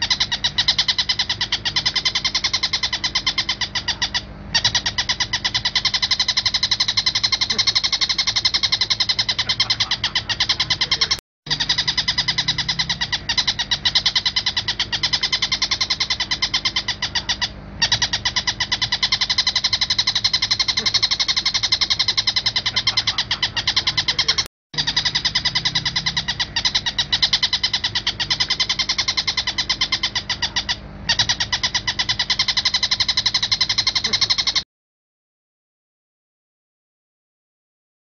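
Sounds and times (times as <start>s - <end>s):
bird harsh chattering call: 0.0s - 34.6s.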